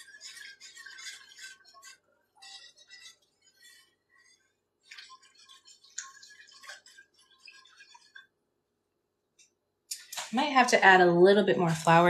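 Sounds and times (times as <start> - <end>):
wire whisk scraping a pot: 0.0 - 8.4.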